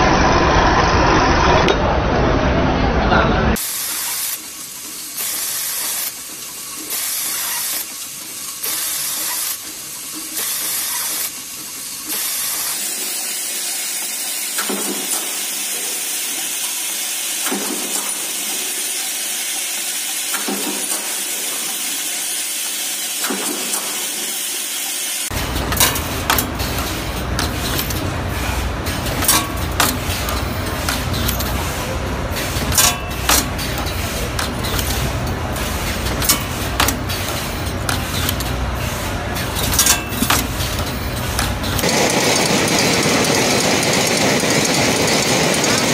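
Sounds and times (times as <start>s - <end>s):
machine hissing bursts: 3.6s - 45.9s
press knocking: 32.4s - 38.5s.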